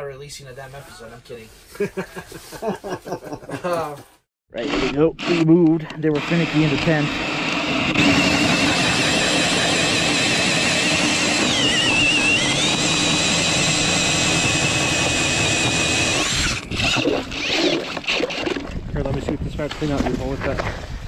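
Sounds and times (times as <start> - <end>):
cordless drill whining: 4.6 - 18.8.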